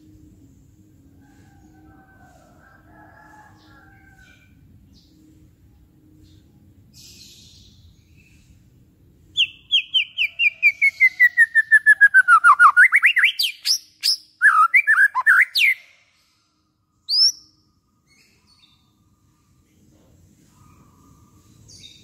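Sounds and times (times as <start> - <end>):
songbird singing: 3.2 - 16.2, 17.0 - 19.6.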